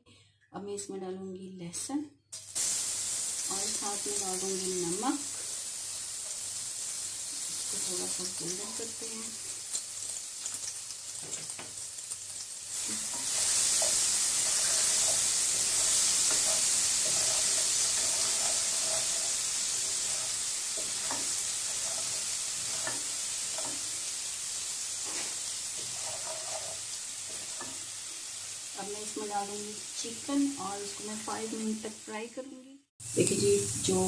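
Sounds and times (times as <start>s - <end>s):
garlic sizzling in hot oil: 2.4s - 32.4s, 33.0s - 34.0s
wooden spoon stirring: 12.8s - 23.9s, 25.8s - 27.8s.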